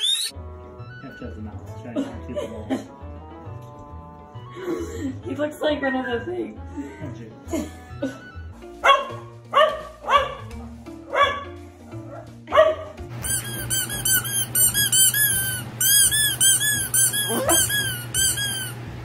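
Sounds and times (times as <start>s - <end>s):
high-pitched squeaks: 0.0s - 0.3s, 13.2s - 18.8s
background music with bass: 0.3s - 18.7s
dog barking: 8.8s - 13.0s, 17.1s - 17.9s.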